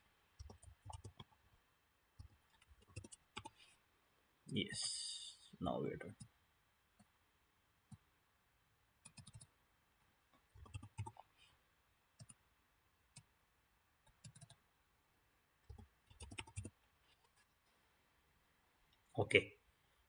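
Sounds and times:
computer mouse clicks: 0.4s - 1.3s, 2.2s - 3.6s, 9.0s - 9.5s, 10.6s - 11.2s, 12.2s - 12.4s, 14.0s - 14.6s, 15.6s - 16.8s.

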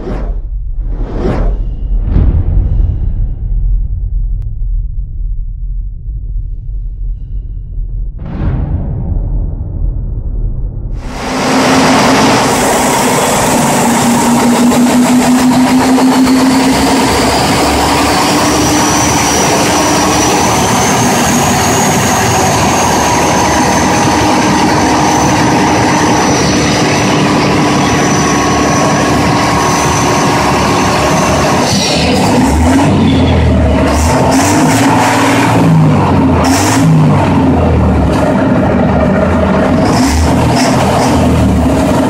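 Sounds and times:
diesel engine running loudly: 11.0s - 42.0s.

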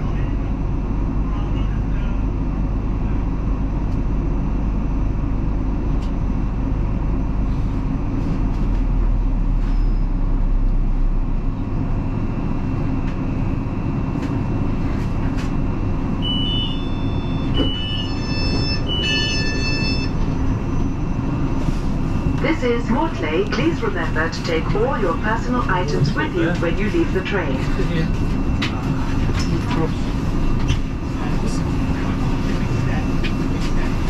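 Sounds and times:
low hum: 0.0s - 34.0s
train wheels and motors rumbling: 0.0s - 34.0s.

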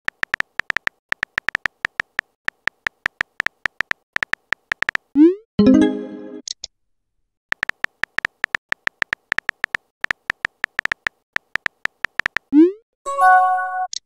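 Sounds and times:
phone keyboard clicks: 0.1s - 5.1s, 7.5s - 12.5s.

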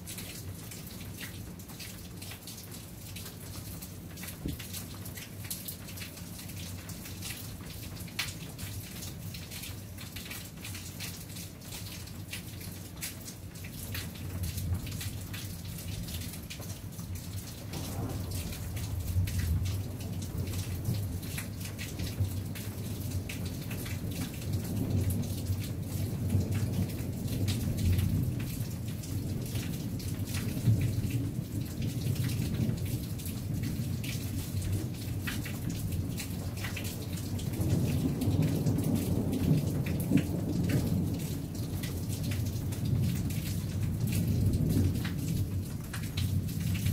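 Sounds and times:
raindrops tapping: 0.0s - 46.9s
rolling thunder: 17.7s - 21.2s.

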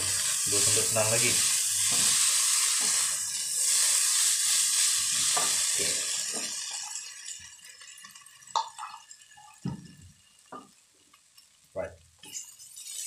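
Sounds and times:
spatulas scraping a wok: 0.0s - 6.0s
noodles sizzling in a wok: 0.0s - 13.0s.

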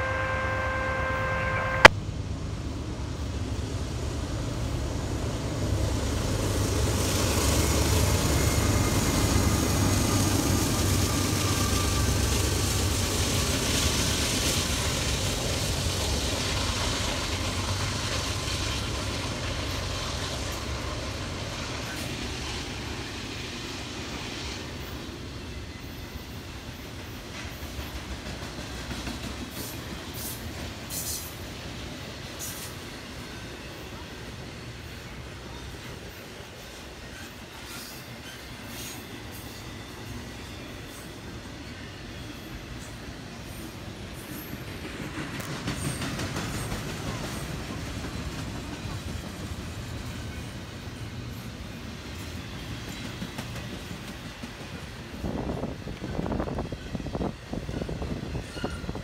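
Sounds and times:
steady pitched tone: 0.0s - 2.0s
diesel locomotives passing: 0.0s - 59.0s.

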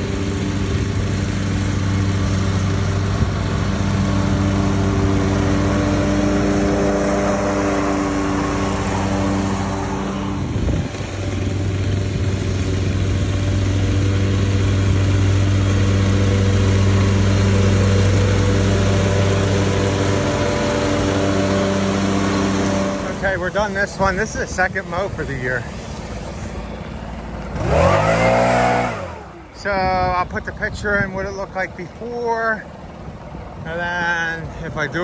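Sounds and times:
lawn mower engine running: 0.0s - 35.0s.

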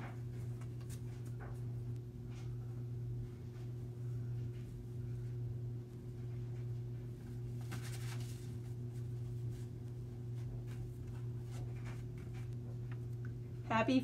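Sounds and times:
low hum: 0.0s - 14.0s
paper rustling: 7.2s - 12.5s.

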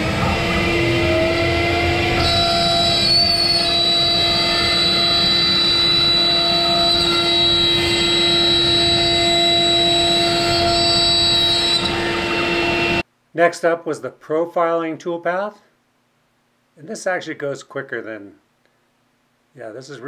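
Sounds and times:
router spindle whining: 0.0s - 13.0s.

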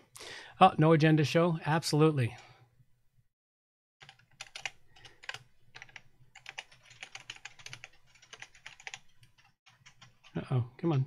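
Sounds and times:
computer keyboard typing: 4.0s - 10.4s.

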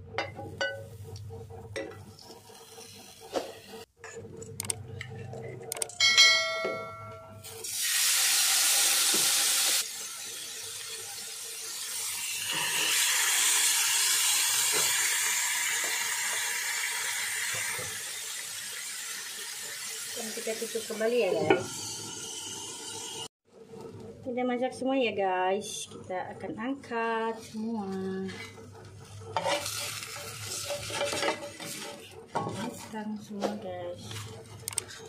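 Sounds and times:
fish sizzling in hot fat: 7.6s - 23.3s, 29.6s - 31.2s.

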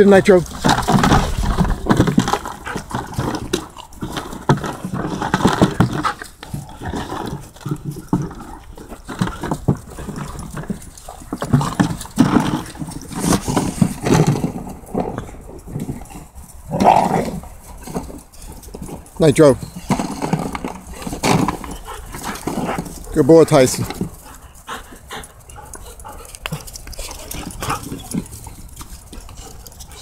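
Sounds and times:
scuffling and knocks: 0.4s - 30.0s
puppies growling and whining: 11.5s - 18.6s.

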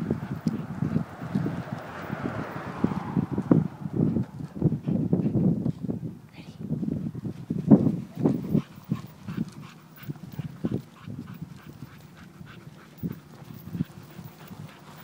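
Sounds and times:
dog panting: 0.0s - 2.6s, 4.1s - 5.6s, 8.0s - 15.0s.

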